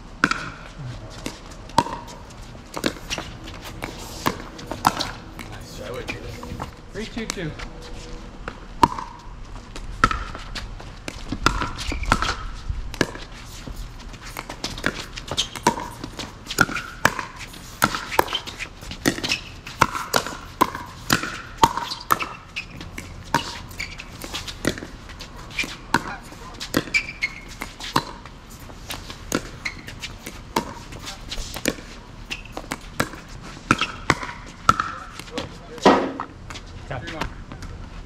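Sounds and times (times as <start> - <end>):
paddles hitting ball: 0.2 - 6.6, 8.8 - 9.2, 10.0 - 10.4, 11.1 - 13.3, 14.3 - 28.3, 28.9 - 36.6
ball bouncing on court: 0.2 - 7.4, 8.4 - 9.3, 10.0 - 10.4, 11.0 - 13.3, 14.4 - 28.3, 28.9 - 36.6
shoe squeaks: 1.0 - 6.8, 11.6 - 12.6, 13.4 - 20.4, 21.3 - 34.1.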